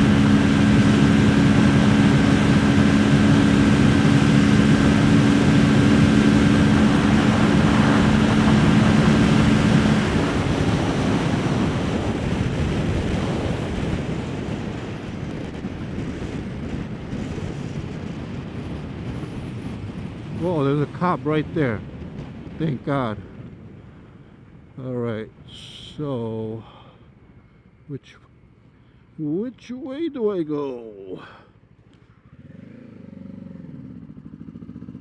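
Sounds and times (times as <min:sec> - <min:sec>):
motorcycle engine: 0:00.0 - 0:22.6, 0:30.7 - 0:35.0
wind rush: 0:00.0 - 0:26.5
road noise: 0:00.0 - 0:35.0.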